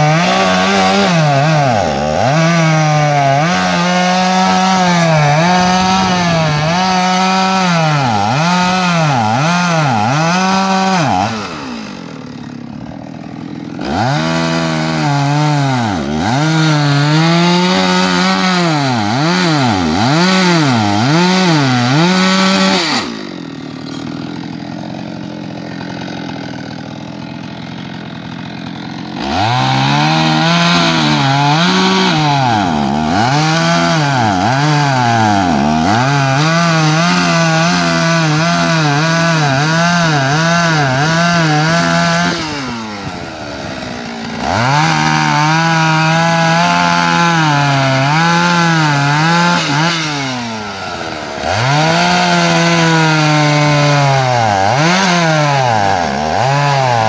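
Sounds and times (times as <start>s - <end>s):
chainsaw cutting a log: 0.0s - 57.0s.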